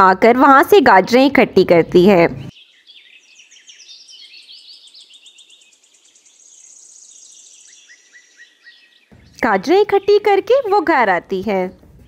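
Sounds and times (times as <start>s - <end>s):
small birds chirping: 0.2s - 12.0s
rapid high bird trill: 2.5s - 10.9s.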